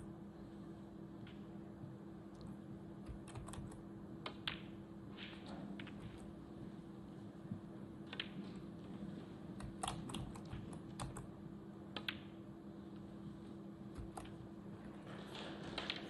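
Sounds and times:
low steady hum: 0.0s - 16.0s
snooker balls clicking: 3.1s - 6.4s, 8.0s - 11.2s, 11.9s - 12.4s, 14.0s - 16.0s.

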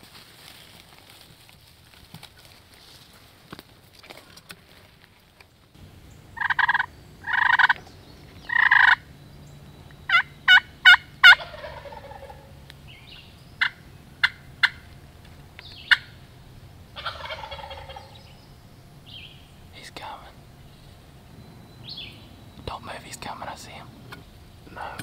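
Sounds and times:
wild turkey gobbling: 5.8s - 22.7s.

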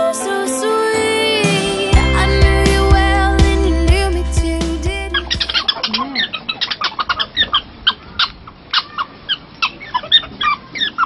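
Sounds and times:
prairie dogs squeaking and chirping: 5.2s - 11.0s.

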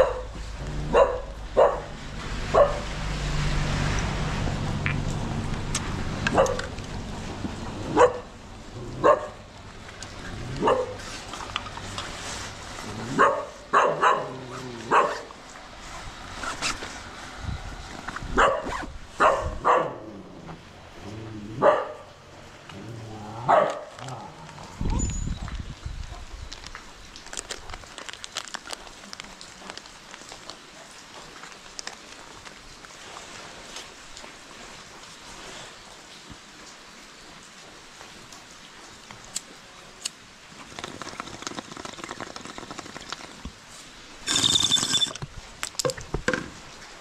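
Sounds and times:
dog barking: 0.0s - 2.9s, 6.3s - 6.7s, 7.9s - 8.3s, 9.0s - 9.4s, 10.6s - 11.0s, 13.2s - 15.3s, 18.4s - 20.1s, 21.6s - 22.2s, 23.5s - 24.0s.

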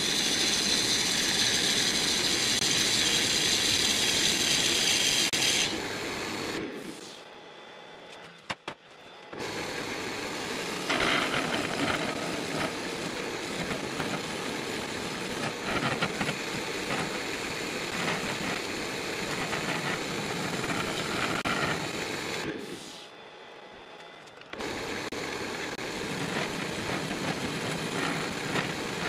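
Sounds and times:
wood lathe running: 0.0s - 6.0s, 9.4s - 22.4s, 24.6s - 29.0s
turning tool scraping wood: 10.8s - 21.9s, 26.0s - 29.0s.

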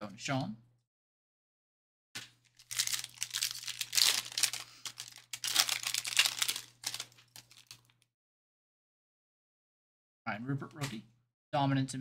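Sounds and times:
foil wrapper tearing and crinkling: 2.5s - 8.0s.

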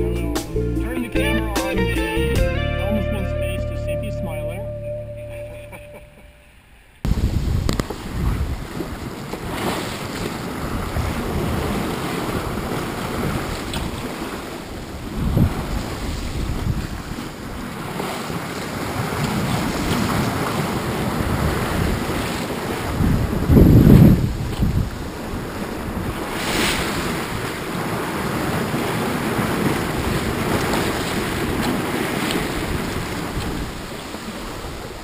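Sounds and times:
waves rushing along hull: 5.7s - 35.0s
wind buffeting microphone: 7.0s - 35.0s.

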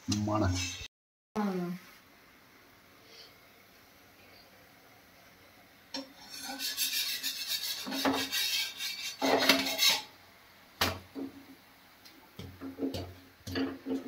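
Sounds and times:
utensil scraping a cooking pot: 6.0s - 10.1s.

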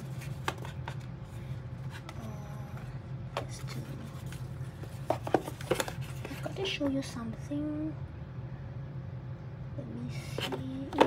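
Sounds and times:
light rustling of packaging: 0.0s - 6.9s
steady low hum: 0.0s - 11.0s.

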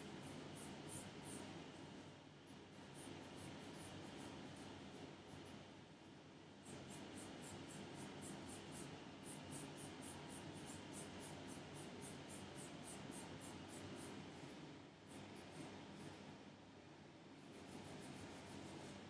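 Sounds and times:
brush scratchy strokes on nail: 17.4s - 19.0s.

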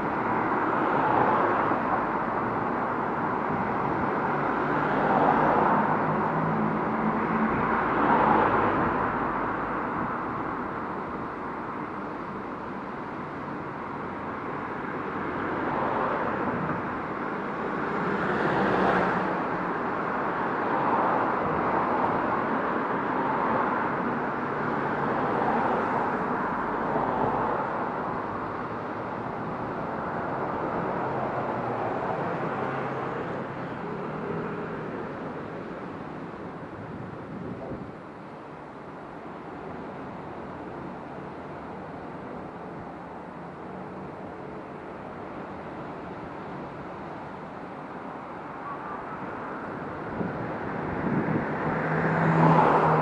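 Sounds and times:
cars driving past: 0.0s - 53.0s
steady traffic rush: 0.0s - 53.0s.

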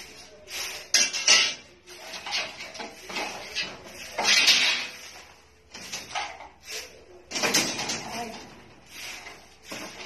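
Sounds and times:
broom sweeping concrete floor: 0.0s - 10.0s
debris scraping and clattering: 0.9s - 6.6s.

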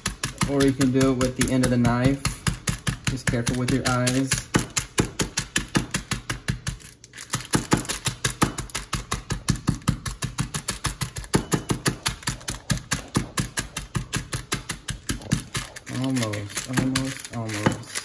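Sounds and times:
knife handle pounding on board: 7.6s - 15.8s.

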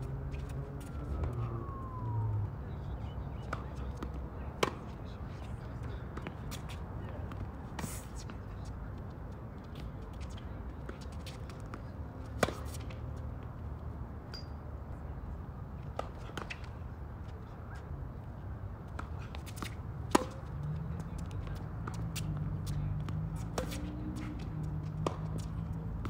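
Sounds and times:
tennis racket hitting ball: 12.4s - 12.9s, 19.0s - 20.5s, 21.4s - 25.8s.

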